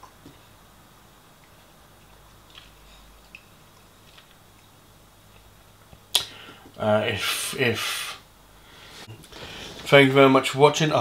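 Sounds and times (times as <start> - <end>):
low steady hum: 0.0 - 11.0
man chewing food: 1.3 - 6.7.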